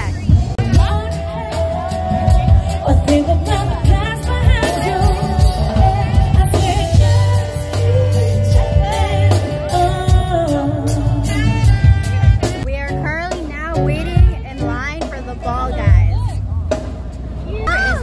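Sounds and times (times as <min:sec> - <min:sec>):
electric bass: 0:00.0 - 0:18.0
steady drum beat: 0:00.0 - 0:18.0
woman singing long notes: 0:00.6 - 0:12.4.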